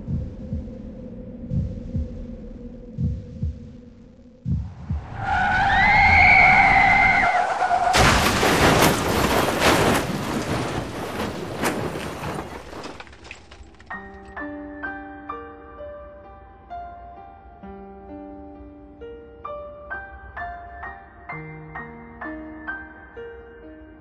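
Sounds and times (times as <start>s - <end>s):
low thumps: 0.0s - 13.3s
pitched screech: 5.1s - 8.0s
loud crash with shattering: 5.8s - 13.9s
piano music: 13.8s - 24.0s.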